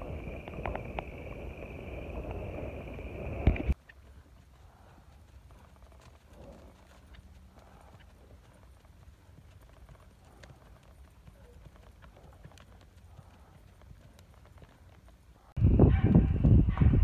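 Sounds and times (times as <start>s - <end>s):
hoofbeats on gravel: 3.7s - 16.3s.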